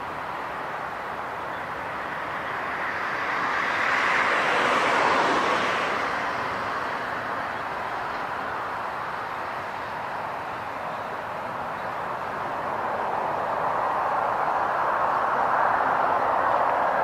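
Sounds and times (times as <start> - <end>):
jet airliner passing: 2.1 - 7.6, 10.5 - 17.0.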